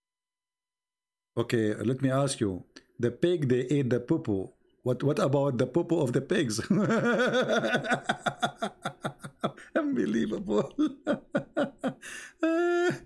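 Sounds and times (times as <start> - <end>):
man laughing: 6.6 - 13.0.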